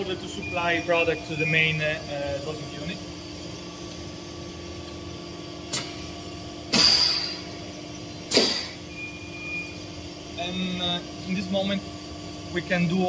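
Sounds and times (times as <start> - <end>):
machine humming: 0.0 - 13.0
short hisses: 8.3 - 8.8.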